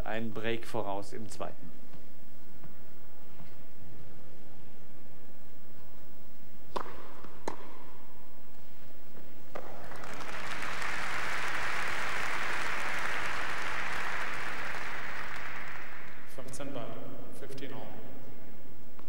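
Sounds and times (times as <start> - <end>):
tennis ball struck by rackets: 6.7 - 8.0
crowd applauding: 9.6 - 16.3.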